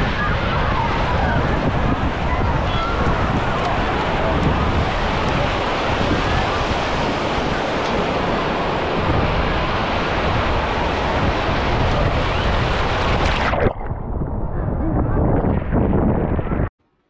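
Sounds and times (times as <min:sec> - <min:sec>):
ocean surf on a beach: 0:00.0 - 0:13.6
wind buffeting microphone: 0:00.0 - 0:16.7.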